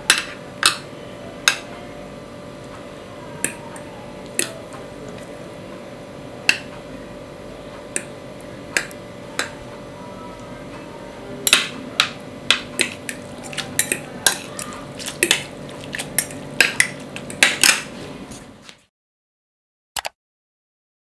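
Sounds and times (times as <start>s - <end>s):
fork and spoon clinking bowl: 11.5s - 17.9s.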